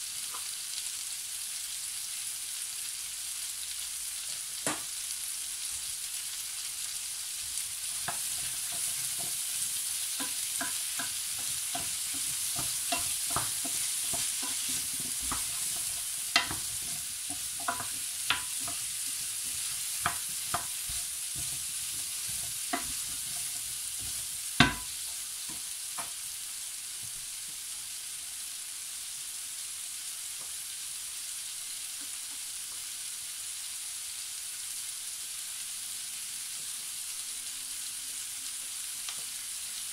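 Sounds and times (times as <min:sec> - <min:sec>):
vegetables sizzling in a pan: 0:00.0 - 0:39.9
wooden spoon scraping a pan: 0:07.8 - 0:26.1.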